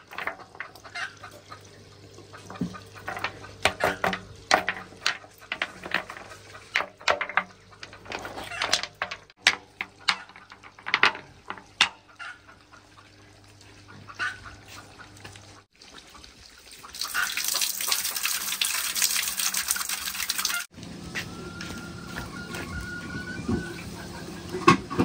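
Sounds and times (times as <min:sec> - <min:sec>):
water running from a pipe onto pebbles: 0:00.0 - 0:20.8
pebbles clicking: 0:03.0 - 0:11.8.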